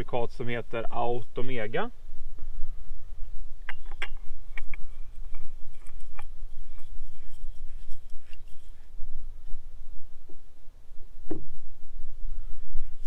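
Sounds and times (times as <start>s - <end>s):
handling clicks and rustles: 3.6s - 9.7s.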